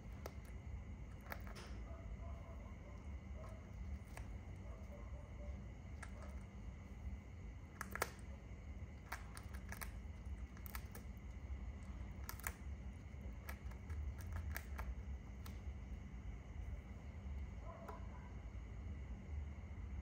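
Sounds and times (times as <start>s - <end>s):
beak clicking and snapping: 0.0s - 1.8s, 7.6s - 15.8s
low steady hum: 0.0s - 20.0s.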